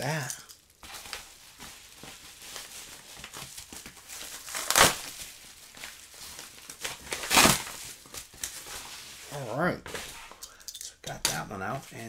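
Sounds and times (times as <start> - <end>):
plastic bag crinkling: 0.0 - 8.6.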